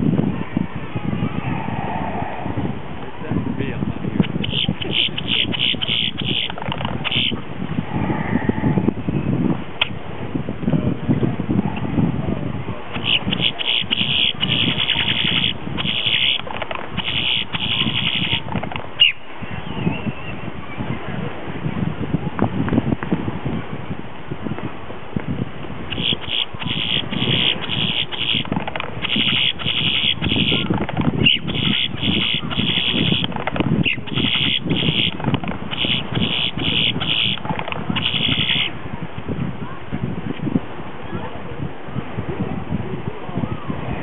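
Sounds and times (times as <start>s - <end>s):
steady low rumble: 0.0s - 44.0s
bird harsh chattering: 4.2s - 7.4s, 12.9s - 19.2s, 25.9s - 37.4s, 38.0s - 38.7s.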